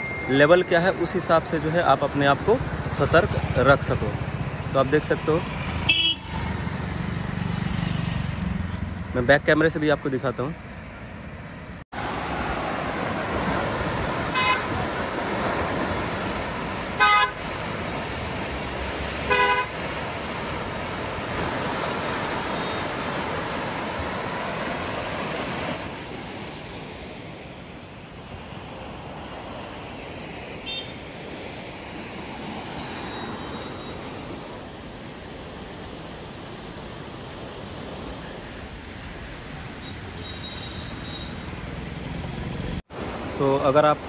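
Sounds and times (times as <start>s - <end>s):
vehicle horns honking: 5.8s - 6.4s, 14.3s - 14.8s, 17.0s - 17.4s, 19.3s - 19.8s, 22.5s - 22.9s, 30.6s - 31.0s, 39.8s - 41.4s
floodwater rushing: 11.9s - 44.0s.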